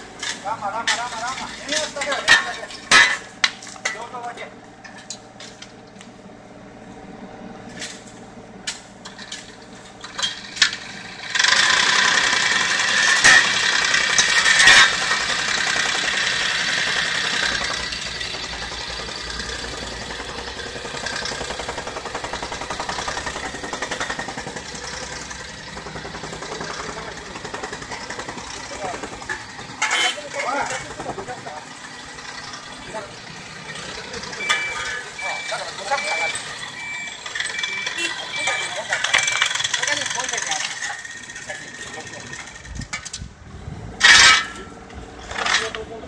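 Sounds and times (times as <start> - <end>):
machinery engine hum: 0.0 - 46.0
loud rushing machine noise: 10.8 - 29.9, 39.2 - 42.8
hand tools clinking: 14.2 - 15.2, 29.2 - 31.0, 37.2 - 43.2, 44.0 - 46.0.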